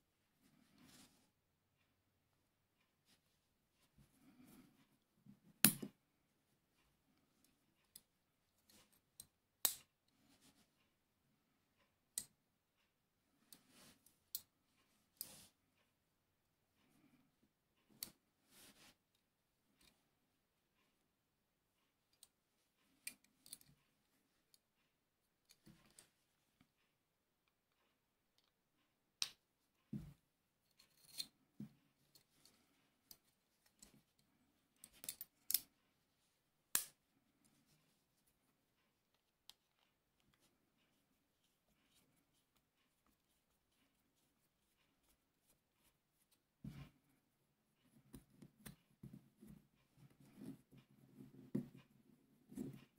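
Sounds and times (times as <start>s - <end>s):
soft handling rustles: 0.3s - 1.5s, 17.8s - 20.2s
metallic clicks of flintlock parts: 34.8s - 35.8s, 36.7s - 37.0s.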